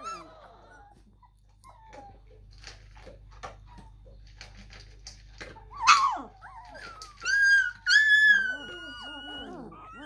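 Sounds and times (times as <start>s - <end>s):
puppies whimpering: 0.0s - 4.7s, 5.4s - 10.0s
soft clicks and rustles: 0.9s - 5.8s.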